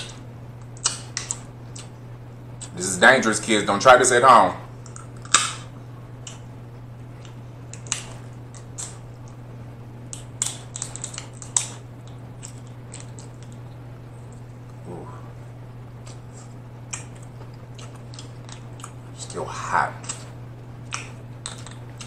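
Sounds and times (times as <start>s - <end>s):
steady low hum: 0.0s - 22.0s
crab shell crackling and clicking: 7.2s - 9.4s, 10.1s - 13.6s, 20.9s - 22.0s.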